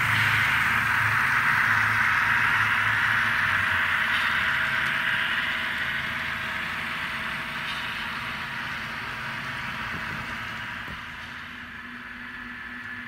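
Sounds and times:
model locomotive engine drone: 0:00.0 - 0:13.0.

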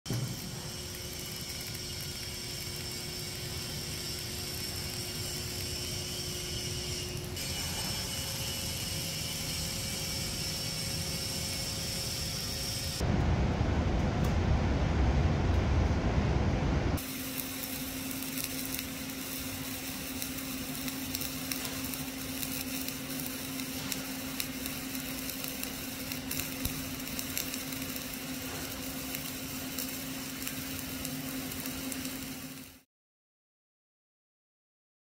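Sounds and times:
welding arc crackling: 0:00.1 - 0:15.0, 0:17.0 - 0:32.9
steady low hum: 0:00.1 - 0:32.6
low rumble: 0:13.0 - 0:17.0.

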